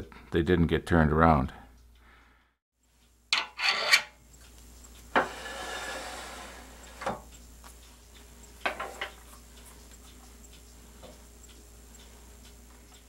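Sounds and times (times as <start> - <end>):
tailstock sliding scrape: 5.2 - 7.0.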